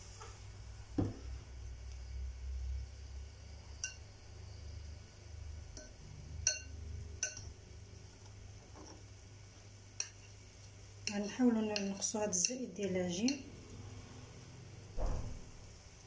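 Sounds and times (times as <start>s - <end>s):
low steady hum: 0.0s - 16.0s
fork clinking on ceramic bowl: 5.8s - 7.5s.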